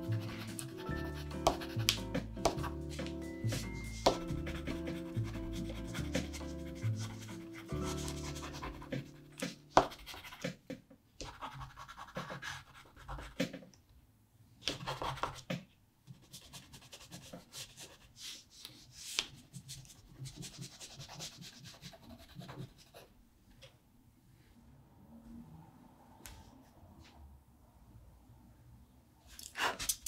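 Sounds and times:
crayon scratching on paper: 0.0s - 10.6s, 11.2s - 13.6s, 19.1s - 23.1s.

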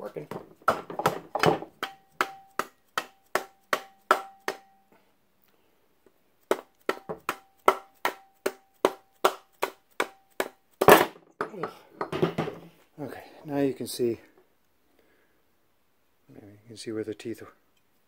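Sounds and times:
mallet striking metal with ring: 1.8s - 4.8s.

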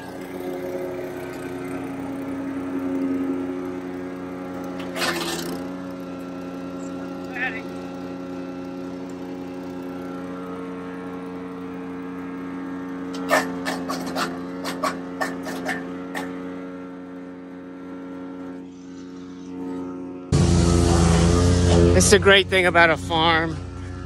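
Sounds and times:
wood chipper engine running: 0.0s - 24.0s
chipper cracking stems: 4.6s - 5.8s, 13.0s - 16.4s.

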